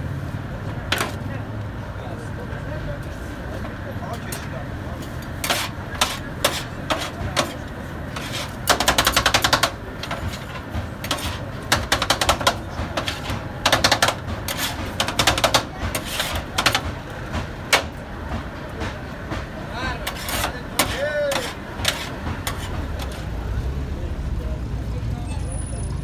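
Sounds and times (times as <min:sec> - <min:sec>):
metal spatula clacking on griddle: 0:00.9 - 0:01.2, 0:05.3 - 0:18.0, 0:20.0 - 0:23.3.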